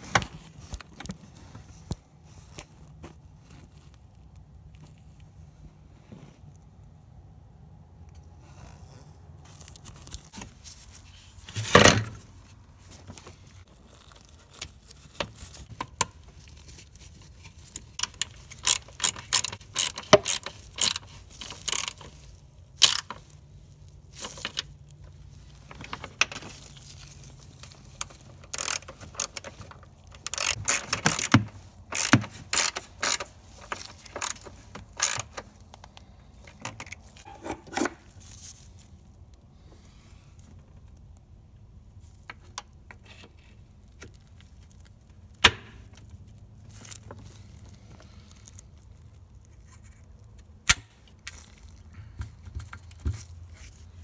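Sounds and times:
tools and plastic parts rattling: 13.0 - 23.4, 24.1 - 38.5
ratchet wrench clicking: 18.0 - 22.1, 22.8 - 23.2, 28.0 - 29.6, 30.2 - 35.4.

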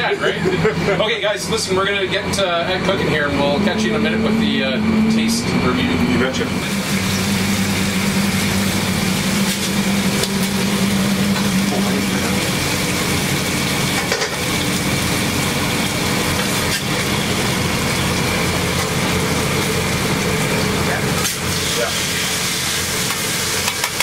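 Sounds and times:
exhaust hood fan hum: 0.0 - 24.0
food sizzling on a griddle: 6.7 - 24.0.

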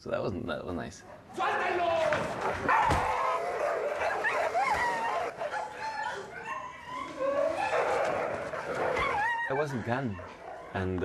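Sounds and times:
dogs barking and yelping: 2.3 - 11.0.

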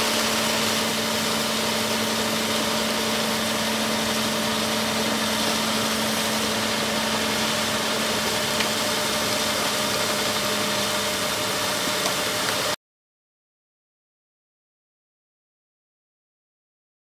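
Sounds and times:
tractor engine running: 0.0 - 12.8
water cannon spraying: 0.0 - 12.8.

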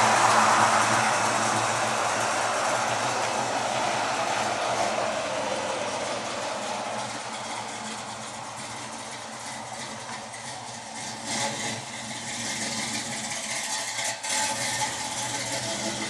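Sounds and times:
car exhaust rumbling: 0.0 - 16.0.

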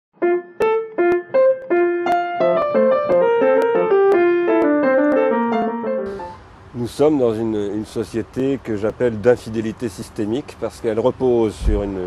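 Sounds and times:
solo piano melody: 0.2 - 6.6.

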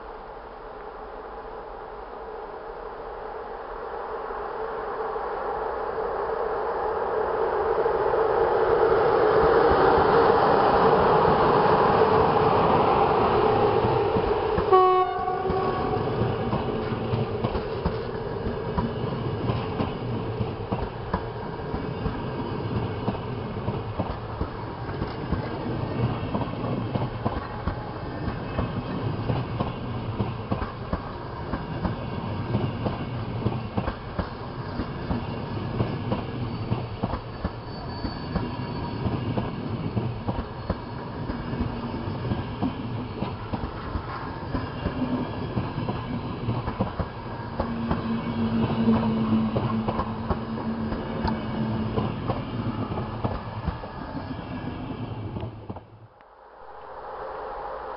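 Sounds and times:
train coaches rumbling past: 1.4 - 57.9
train horn blast: 14.6 - 16.5.

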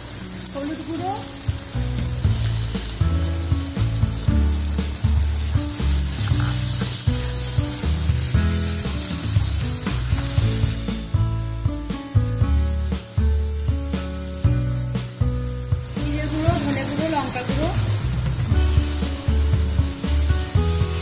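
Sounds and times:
background music: 0.0 - 21.0
spices sizzling in hot oil: 0.0 - 21.0
metal spatula scraping pan: 6.2 - 7.0.

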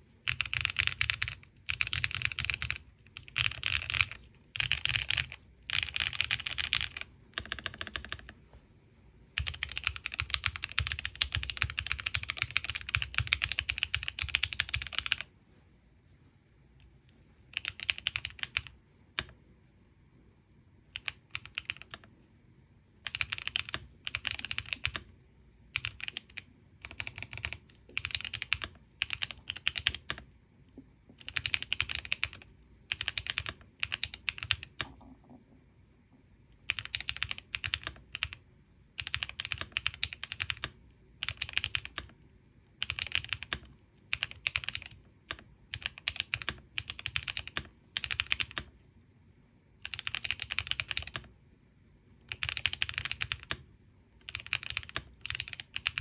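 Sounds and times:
mechanical keyboard typing: 0.2 - 8.4, 9.4 - 15.3, 17.5 - 19.4, 20.9 - 22.1, 23.0 - 25.1, 25.7 - 30.3, 31.1 - 35.2, 36.6 - 38.4, 39.0 - 42.2, 42.8 - 48.8, 49.8 - 51.3, 52.2 - 53.6, 54.2 - 56.0.

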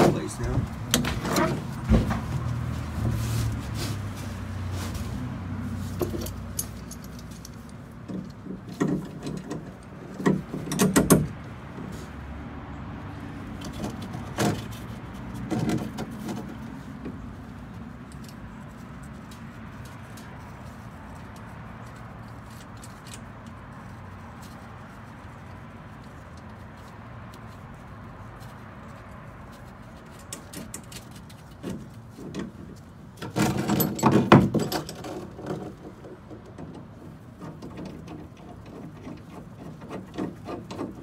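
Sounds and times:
metal parts clinking and rattling: 5.8 - 11.4, 17.5 - 24.6, 29.5 - 36.0.

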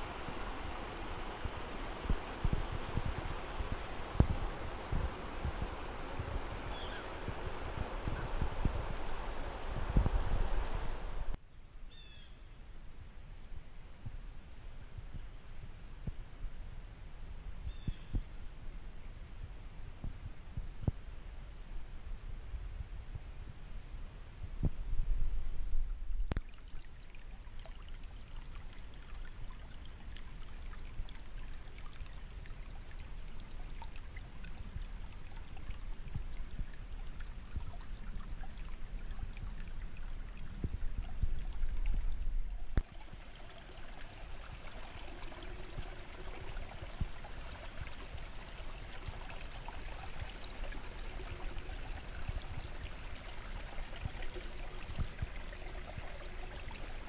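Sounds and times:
water trickling over rocks: 25.2 - 57.0
low rumble: 39.4 - 42.9.

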